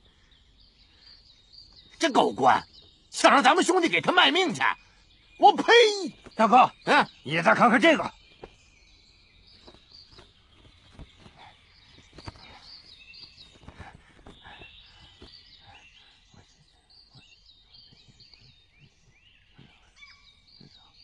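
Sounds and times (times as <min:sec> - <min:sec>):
small birds chirping: 0:00.0 - 0:21.0
paper rustling and crackling: 0:09.6 - 0:12.7.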